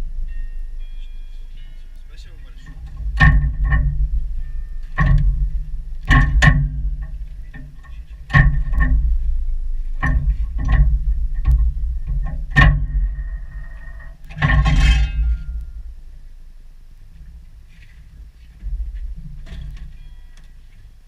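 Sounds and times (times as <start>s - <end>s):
low rumble: 0.0s - 20.0s
metallic clicks and knocks: 2.6s - 16.0s, 18.6s - 20.9s
scraping clatter: 2.6s - 16.0s.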